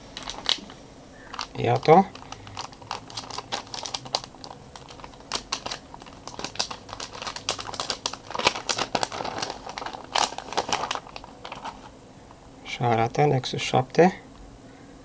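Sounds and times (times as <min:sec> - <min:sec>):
plastic wrapping crinkling: 0:00.0 - 0:11.9.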